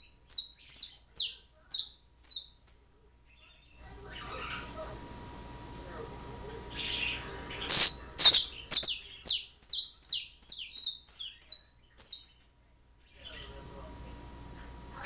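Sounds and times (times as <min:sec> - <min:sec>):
canary singing: 0:00.0 - 0:04.7, 0:06.7 - 0:12.4.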